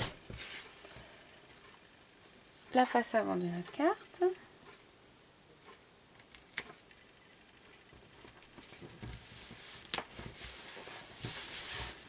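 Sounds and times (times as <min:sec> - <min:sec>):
papery rustling: 0:08.6 - 0:12.0.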